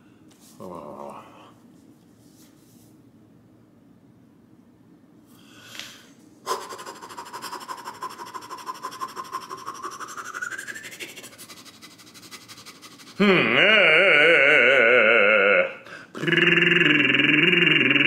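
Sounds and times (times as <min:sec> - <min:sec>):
whistly exhale through pursed lips: 0:10.1 - 0:11.2.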